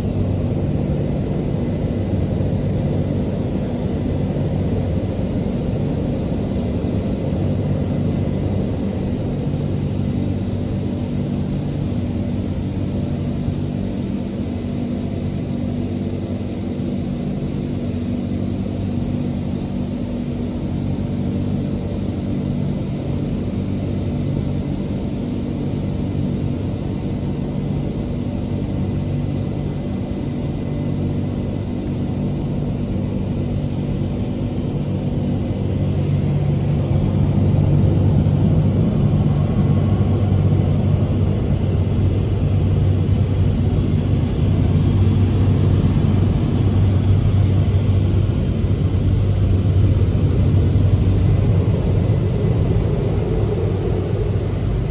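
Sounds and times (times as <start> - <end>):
car wash mechanical rumble: 33.9 - 54.9.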